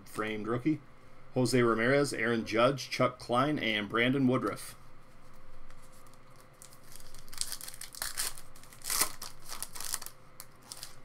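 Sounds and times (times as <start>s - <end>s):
foil wrapper crinkling and tearing: 5.9s - 11.0s.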